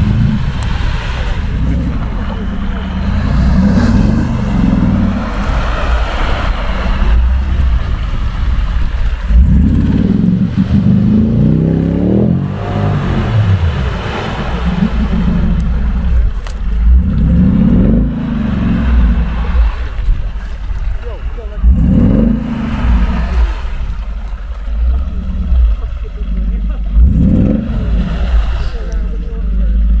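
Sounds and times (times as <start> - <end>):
engine revving hard: 0.0 - 8.4, 9.2 - 20.0, 21.6 - 30.0
wheels spinning in mud: 0.0 - 30.0.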